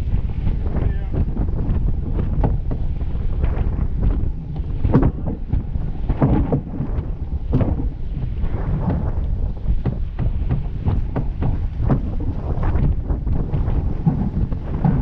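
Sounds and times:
water rushing along hull: 0.0s - 15.0s
water splashes: 0.0s - 15.0s
wind buffeting microphone: 0.0s - 15.0s.

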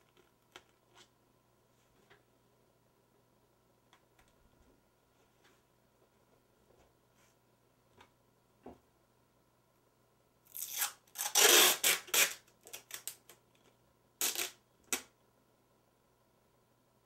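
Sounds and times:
packing tape ripping off roll: 10.5s - 13.4s, 14.2s - 15.1s.

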